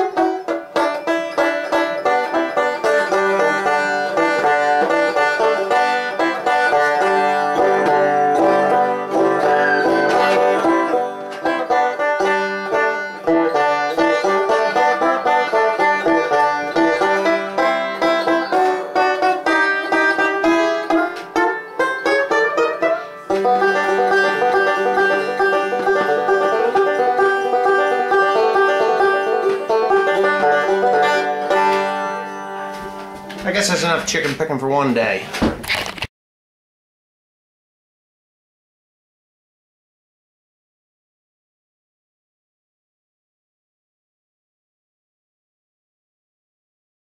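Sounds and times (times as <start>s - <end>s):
banjo plucked solo: 0.0s - 34.3s.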